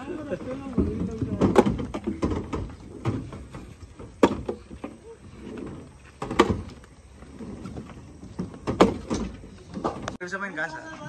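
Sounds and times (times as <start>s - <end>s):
wood clatter: 0.0s - 10.2s
logs knocking onto pile: 0.1s - 5.0s, 6.0s - 6.9s, 7.7s - 10.2s.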